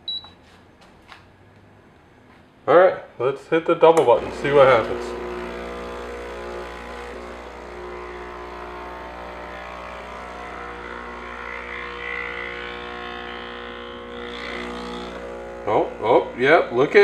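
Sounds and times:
espresso machine pump humming: 4.0s - 17.0s.

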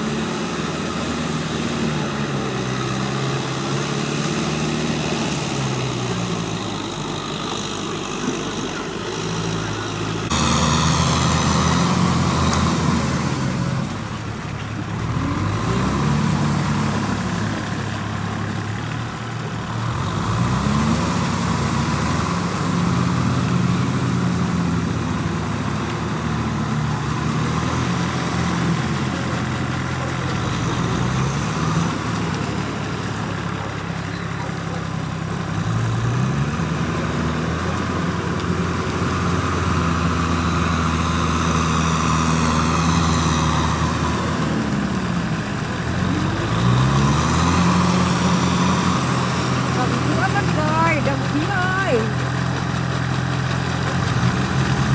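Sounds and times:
tractor engine running: 0.0s - 54.9s.

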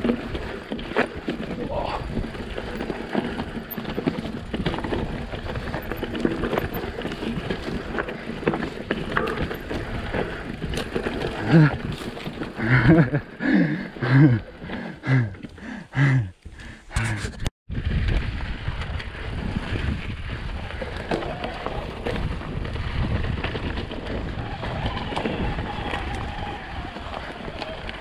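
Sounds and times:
bike rattling and knocking: 0.0s - 15.7s, 17.8s - 28.0s
bike tyres crunching over rock: 0.0s - 15.8s, 17.8s - 28.0s
person speaking: 16.0s - 17.5s
wind on microphone: 17.0s - 28.0s.

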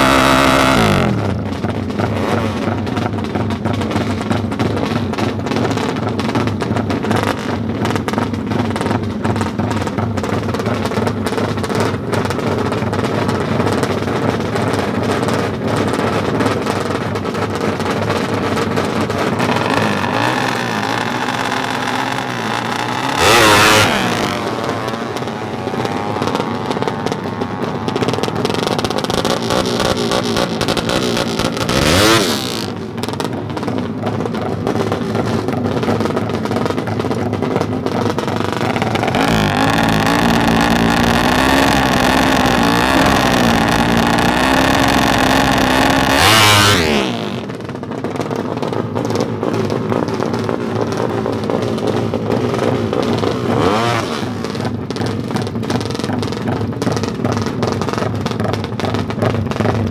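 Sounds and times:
motorbike engine idling and revving: 0.0s - 59.9s.

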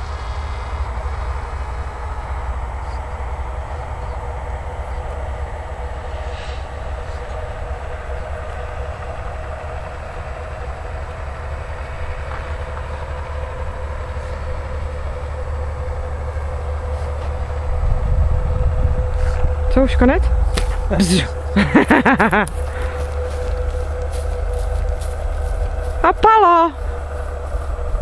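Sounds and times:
wind rumble on microphone: 17.1s - 26.2s, 26.8s - 28.0s.

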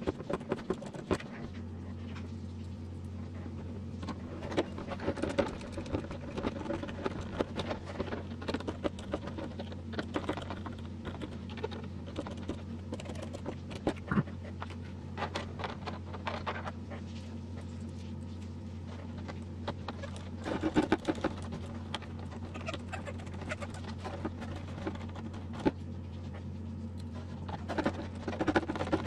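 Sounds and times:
steady low hum: 0.0s - 29.0s
plastic parts clicking and rattling: 27.0s - 29.0s.

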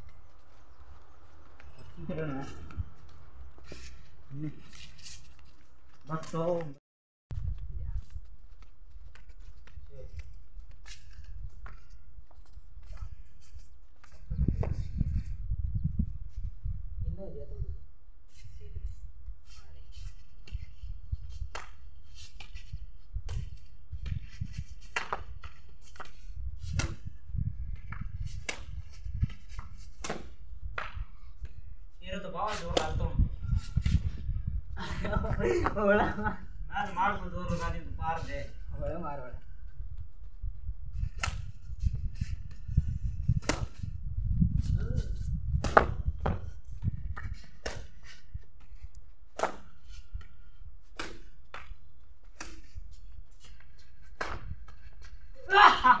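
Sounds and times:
wind rumble on microphone: 0.0s - 3.6s, 7.3s - 8.6s, 9.6s - 49.1s
rackets hitting shuttlecock: 30.0s - 31.6s, 45.6s - 46.4s, 47.1s - 48.1s, 49.3s - 52.8s, 54.0s - 55.1s.

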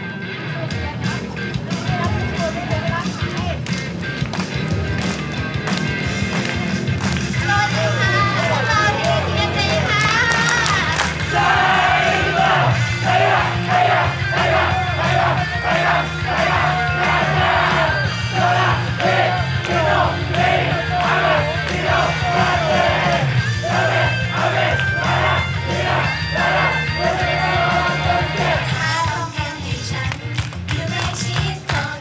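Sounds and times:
pop backing track with bass beat: 0.0s - 32.0s
audience shouting along: 7.5s - 28.8s.

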